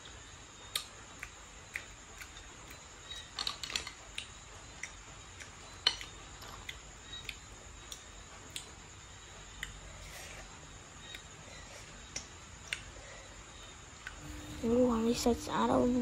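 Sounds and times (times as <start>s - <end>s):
snail shells clicking and tapping: 0.7s - 8.8s.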